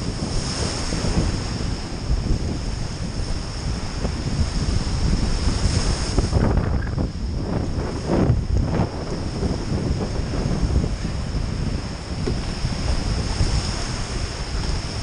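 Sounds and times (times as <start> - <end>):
small waves breaking on beach: 0.0 - 15.0
wind buffeting microphone: 0.0 - 15.0.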